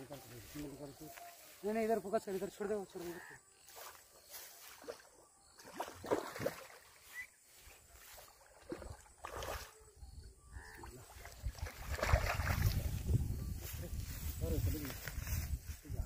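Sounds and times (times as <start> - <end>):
fish splashing in water: 4.7 - 7.1, 8.2 - 9.9, 10.8 - 12.8.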